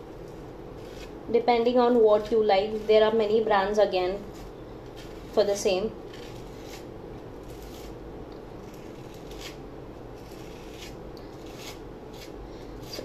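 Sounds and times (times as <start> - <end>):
palette knife scraping paste: 0.8 - 1.2, 8.6 - 9.6, 10.2 - 13.0.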